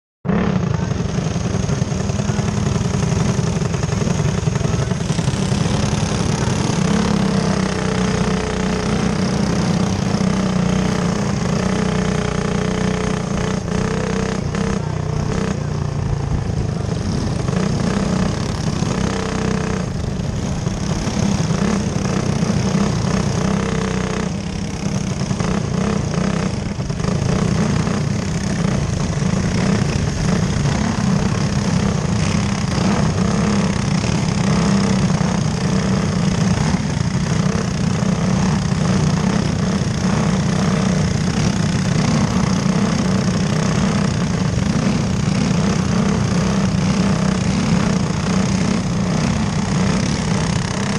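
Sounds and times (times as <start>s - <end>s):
kart engine running: 0.2s - 50.9s
other karts nearby: 0.2s - 50.9s.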